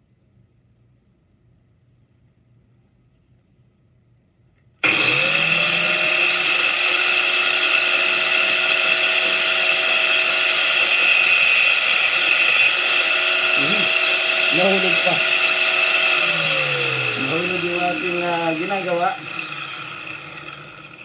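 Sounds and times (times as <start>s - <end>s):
angle grinder whining: 4.8s - 21.0s
grinding metal on disc: 4.8s - 21.0s.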